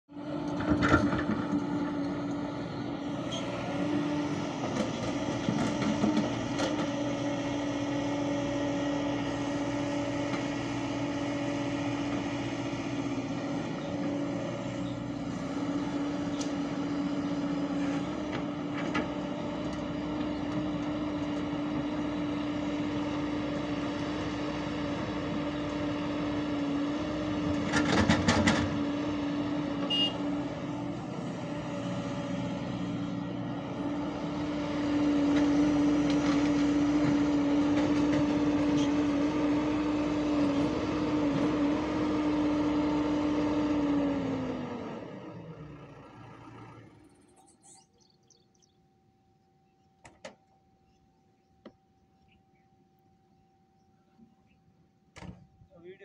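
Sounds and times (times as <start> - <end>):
excavator engine and hydraulics: 0.1 - 56.0.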